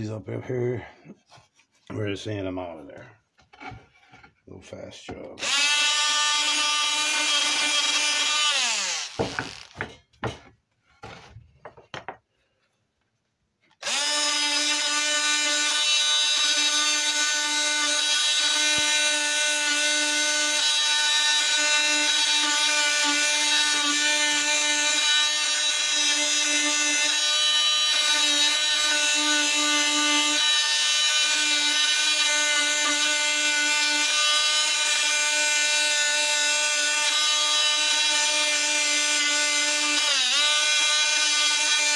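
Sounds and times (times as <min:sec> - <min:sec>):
electric sander whining: 0:05.4 - 0:09.9.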